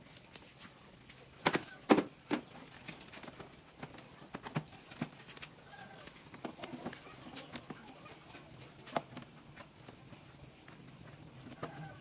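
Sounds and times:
hard objects knocking and clicking: 1.4 - 5.5.

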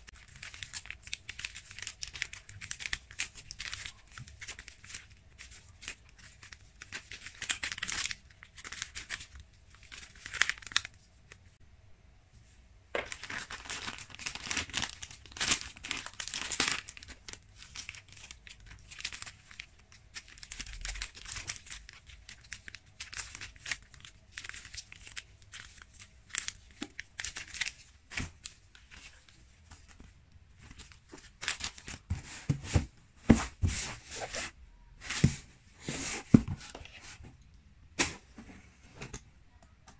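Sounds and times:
paper and foil wrappers crinkling: 0.0 - 11.4, 13.0 - 32.8
cardboard box knocks and thumps: 35.1 - 36.6.

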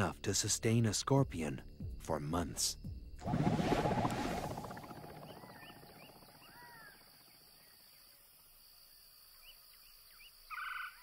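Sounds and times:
harsh pulsed bird call: 3.8 - 7.1.

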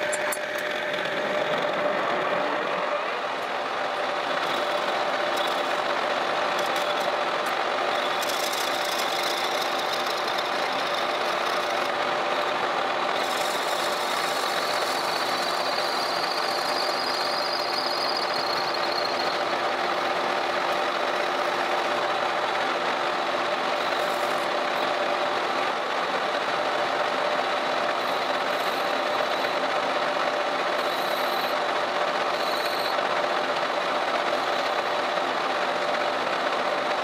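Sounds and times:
tool cutting steel: 0.0 - 1.9, 3.4 - 5.9, 6.5 - 21.7
lathe gear hum: 0.0 - 37.0.

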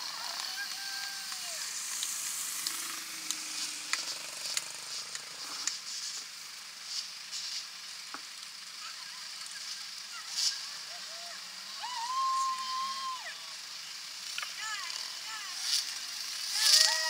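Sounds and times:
crackling hiss: 0.0 - 17.0
sharp clicks: 1.3 - 5.8.

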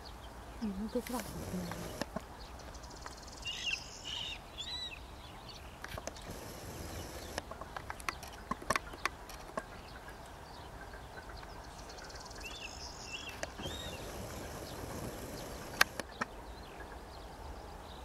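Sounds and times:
high arching bird calls: 0.0 - 17.6
low outdoor background: 0.0 - 18.0
sharp clicks: 1.0 - 2.2, 5.8 - 9.7, 13.3 - 16.3.

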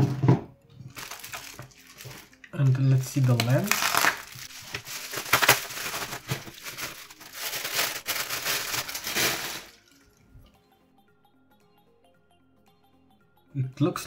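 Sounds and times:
faint background music: 0.0 - 14.0
bubble wrap crinkling: 0.8 - 10.2.

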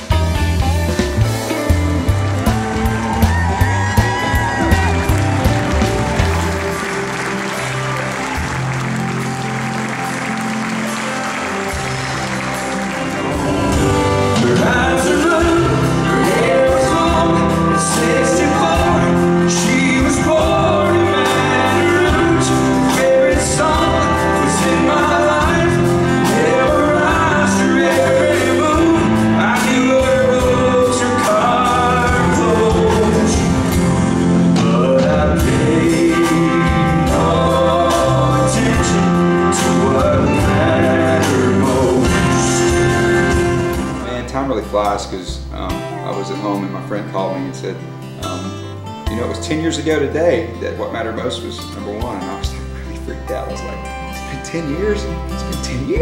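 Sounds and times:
band playing: 0.0 - 56.0
man singing: 14.2 - 53.0.

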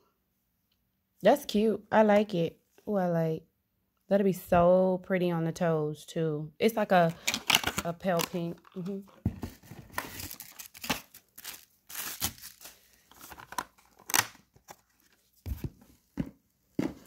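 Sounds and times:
plastic packaging crinkling: 9.4 - 15.2.

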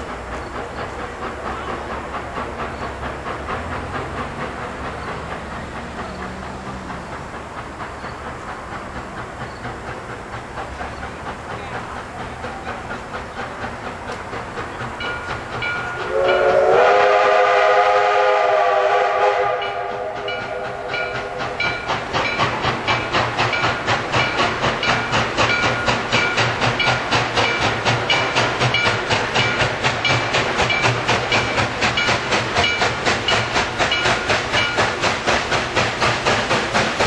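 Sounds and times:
steam locomotive chuffing: 0.0 - 37.0
steam whistle: 16.0 - 21.6.

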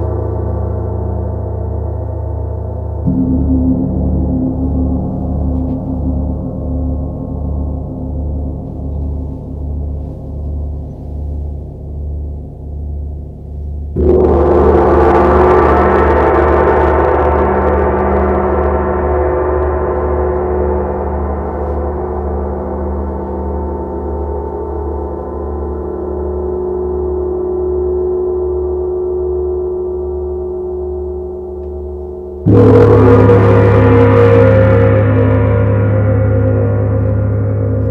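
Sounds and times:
gongs struck with mallets: 2.8 - 10.9, 13.9 - 26.9, 31.6 - 37.9.

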